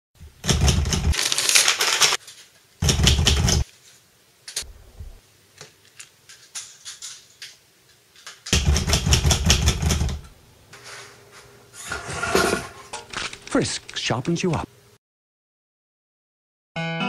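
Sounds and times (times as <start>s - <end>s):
typewriter key strikes: 2.8s - 3.6s, 8.5s - 10.2s.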